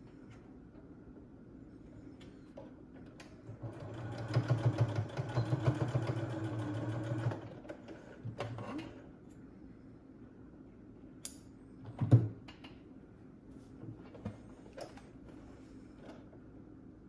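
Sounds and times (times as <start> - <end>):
sewing machine stitching: 3.5 - 9.0.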